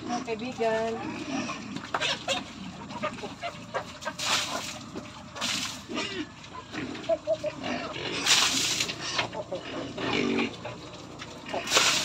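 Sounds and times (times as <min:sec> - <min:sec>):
pigs grunting: 0:00.0 - 0:12.0.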